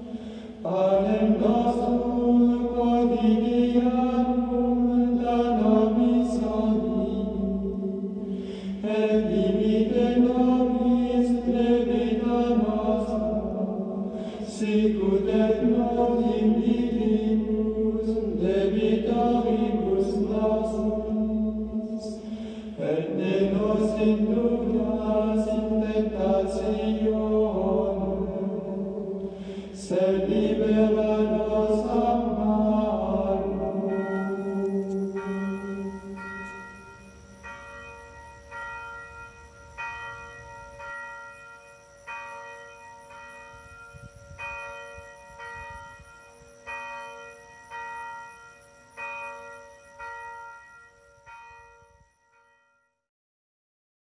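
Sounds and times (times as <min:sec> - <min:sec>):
voices singing plainchant: 0:00.0 - 0:36.7
bells ringing: 0:31.7 - 0:53.0.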